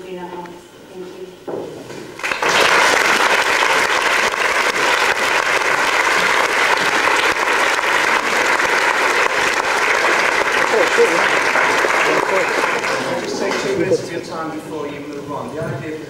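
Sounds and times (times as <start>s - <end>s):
audience clapping: 2.1s - 14.2s.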